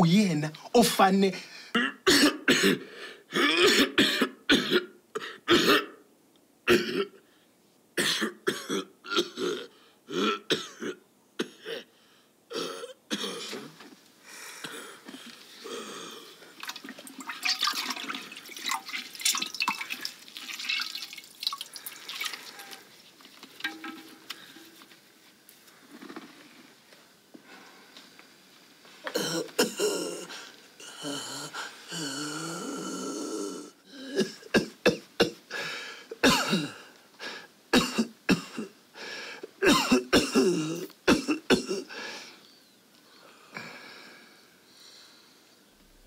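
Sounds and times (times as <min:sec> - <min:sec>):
stick stirring liquid in pot: 0:16.6 - 0:25.0
man coughing: 0:29.1 - 0:30.3, 0:36.2 - 0:36.8, 0:39.6 - 0:41.9.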